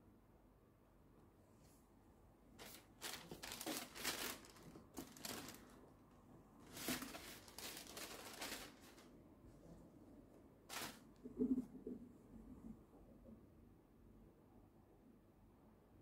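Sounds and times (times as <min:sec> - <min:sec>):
tissue paper crinkling: 0:02.6 - 0:05.8, 0:06.6 - 0:09.1, 0:10.7 - 0:11.0.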